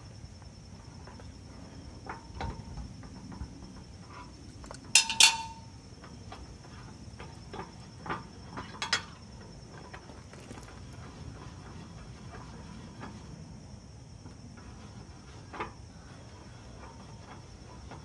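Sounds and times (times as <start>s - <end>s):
metal tools clinking on steel: 5.0s - 5.7s.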